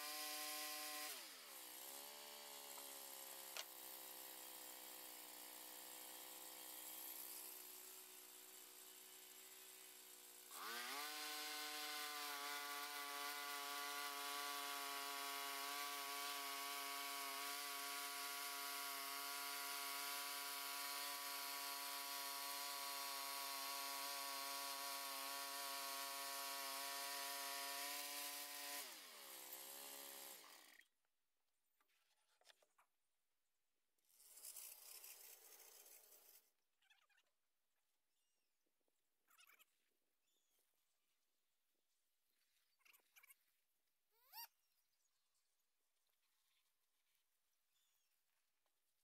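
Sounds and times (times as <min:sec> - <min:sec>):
bandsaw mill whining: 0:00.0 - 0:30.8.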